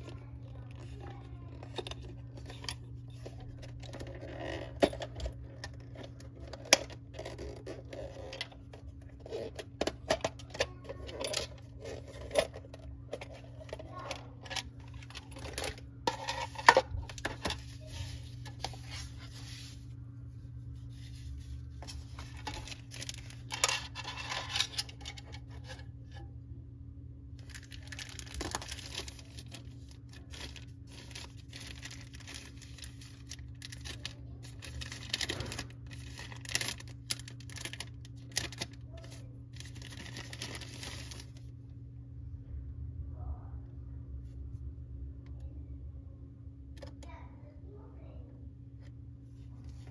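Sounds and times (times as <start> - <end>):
steady low hum: 0.0 - 49.9
plastic wrapper crinkling: 20.8 - 25.8, 27.4 - 41.5.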